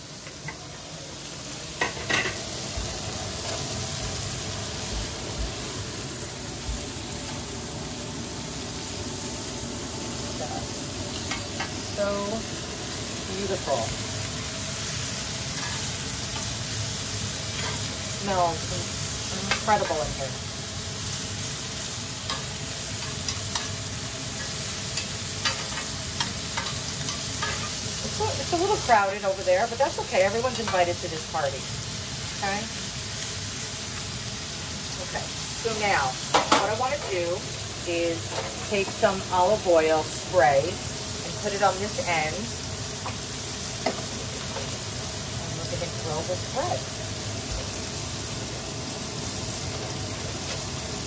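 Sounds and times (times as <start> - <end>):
shrimp sizzling on griddle: 0.0 - 51.0.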